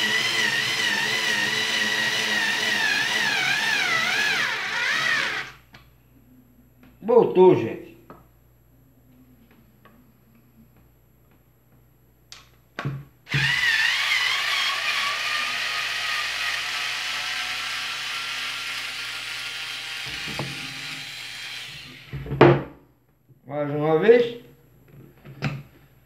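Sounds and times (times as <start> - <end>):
cordless screwdriver motor whirring: 13.3 - 20.2.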